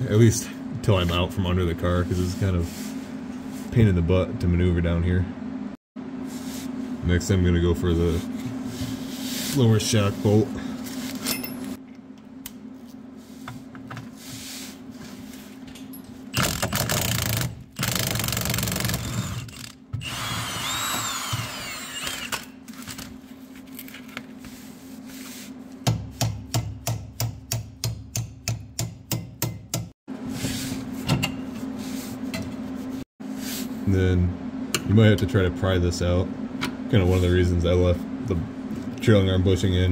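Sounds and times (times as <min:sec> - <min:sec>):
impact wrench bursts: 0:16.3 - 0:22.5.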